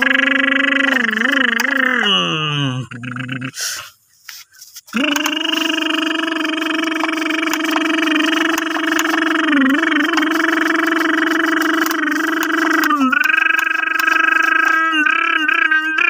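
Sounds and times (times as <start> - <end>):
person imitating engine noises: 0.0 - 4.0, 4.8 - 16.0.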